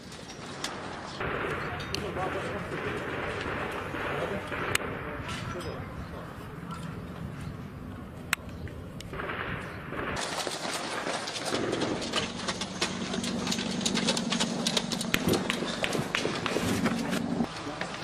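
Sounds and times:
gunshots: 0:01.2 - 0:05.4, 0:09.1 - 0:13.6.

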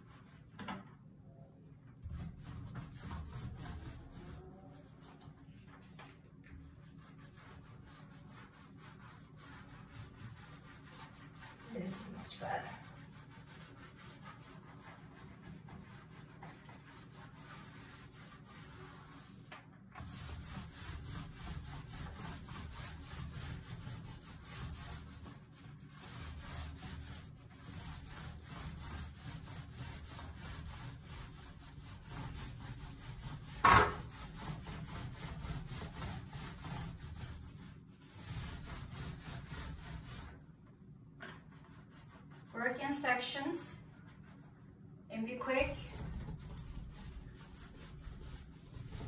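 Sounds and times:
paint roller rubbing on tile: 0:02.0 - 0:05.9, 0:06.5 - 0:40.5, 0:41.4 - 0:44.6, 0:45.4 - 0:49.0.

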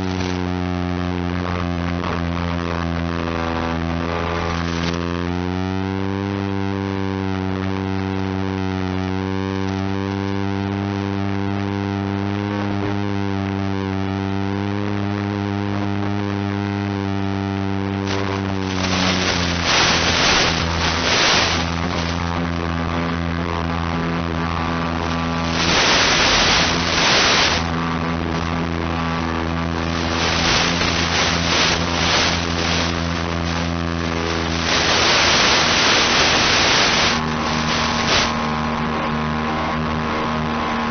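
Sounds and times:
hissing static: 0:00.0 - 0:05.2, 0:16.2 - 0:38.9
steady buzzing hum: 0:00.0 - 0:40.9.

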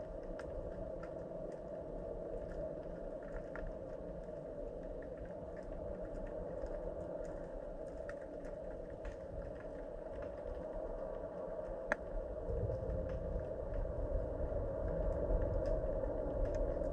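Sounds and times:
faint clicks: 0:00.0 - 0:14.0, 0:14.8 - 0:16.9
low underwater rumble: 0:00.0 - 0:16.9
steady underwater hum: 0:00.0 - 0:16.9.

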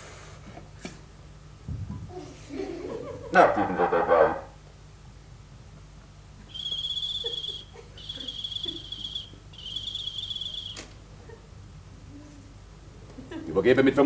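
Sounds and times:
shrill trilling whistle blasts: 0:06.5 - 0:10.9.

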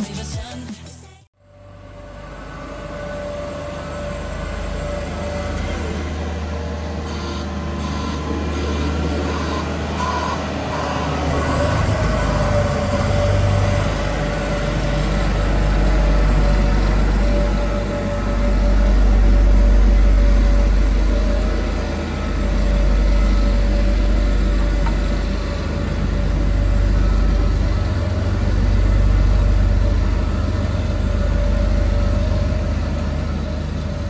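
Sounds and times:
road roller diesel engine: 0:01.3 - 0:34.0
steady whine: 0:01.4 - 0:34.0.

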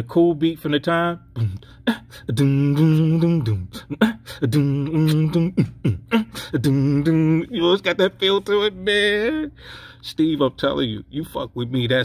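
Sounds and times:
man beatboxing: 0:01.1 - 0:08.6.

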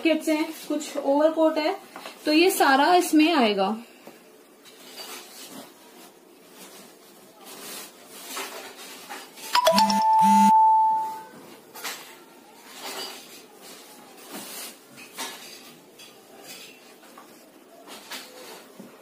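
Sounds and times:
two-note electronic chime: 0:09.6 - 0:11.3.

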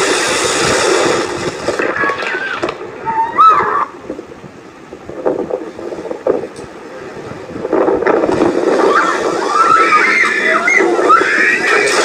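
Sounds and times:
boat engine: 0:00.0 - 0:12.0
water noise: 0:00.0 - 0:12.0
wind buffeting microphone: 0:00.0 - 0:12.0
raised voices: 0:01.8 - 0:04.1, 0:08.6 - 0:12.0.

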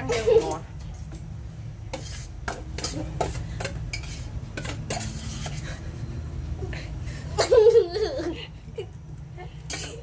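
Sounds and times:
utensils clinking against cookware: 0:00.0 - 0:01.3, 0:01.9 - 0:05.9, 0:09.6 - 0:10.0.

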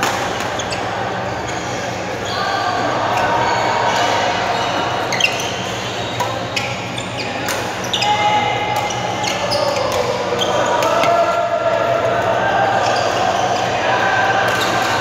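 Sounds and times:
shoes squeaking on court floor: 0:05.1 - 0:08.1
racket hitting shuttlecock: 0:10.8 - 0:11.3.

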